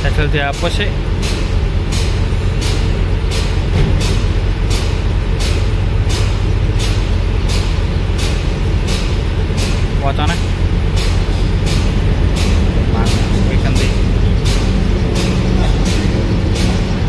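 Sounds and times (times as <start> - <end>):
rhythmic pulsing hiss: 0.0 - 17.0
truck engine idling: 0.0 - 17.0.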